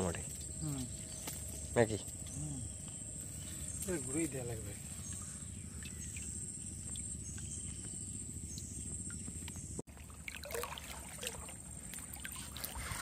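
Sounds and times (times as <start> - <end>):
faint high hum: 0.0 - 13.0
water sloshing and splashing: 4.9 - 13.0.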